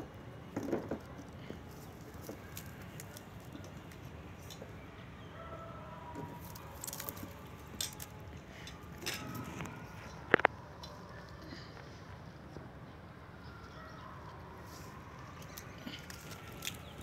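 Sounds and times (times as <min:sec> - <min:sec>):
cats scratching and rustling: 0:00.5 - 0:04.7, 0:06.1 - 0:12.0, 0:14.6 - 0:17.0.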